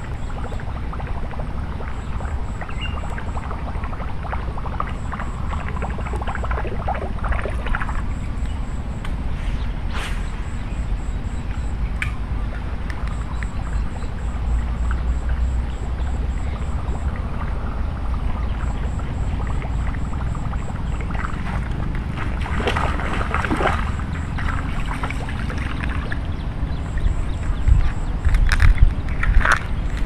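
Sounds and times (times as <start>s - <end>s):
wind on microphone: 0.0s - 14.8s, 20.6s - 30.0s
rustling scrape: 9.3s - 10.6s.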